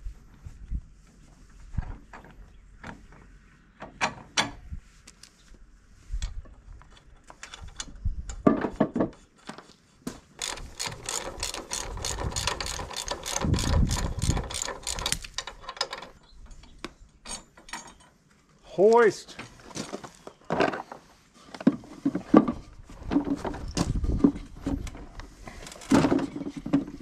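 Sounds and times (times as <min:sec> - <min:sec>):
ratchet wrench clicking: 0:10.4 - 0:16.0.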